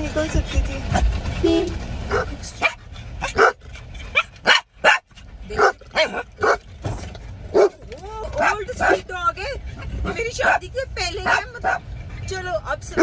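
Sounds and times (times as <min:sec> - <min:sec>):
dog barking: 0:02.1 - 0:05.0, 0:05.6 - 0:06.6, 0:07.5 - 0:07.8, 0:11.2 - 0:11.8.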